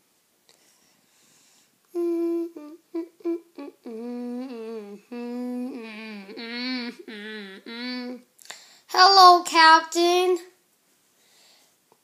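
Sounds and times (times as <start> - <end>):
person humming a tune: 1.9 - 8.2.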